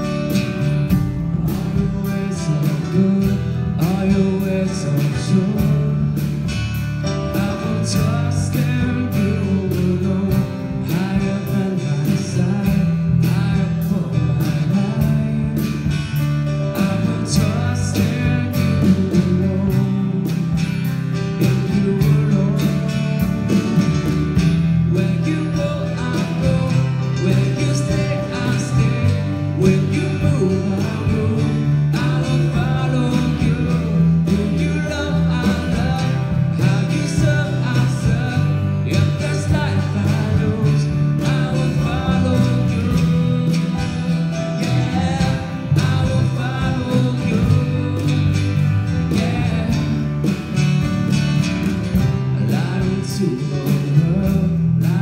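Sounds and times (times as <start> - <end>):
bass guitar: 0.0 - 55.0
strummed acoustic guitar: 0.0 - 55.0.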